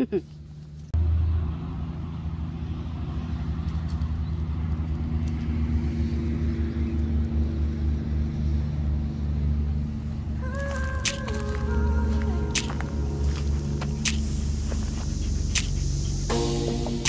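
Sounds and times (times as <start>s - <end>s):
sustained bass background music: 10.9s - 17.0s.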